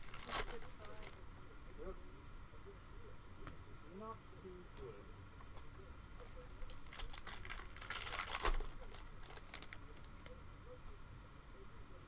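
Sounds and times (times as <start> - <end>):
wrapper crinkling and tearing: 0.0 - 1.2, 6.2 - 10.3.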